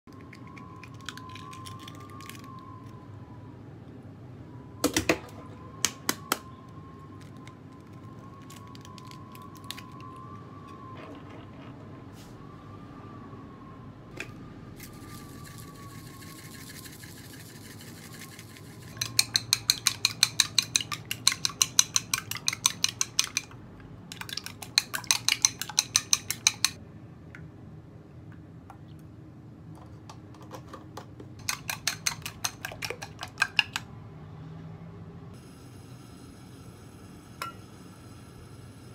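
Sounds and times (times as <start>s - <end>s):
chopsticks whisking eggs in glass bowl: 15.6s - 23.5s, 24.1s - 26.8s, 31.4s - 33.8s.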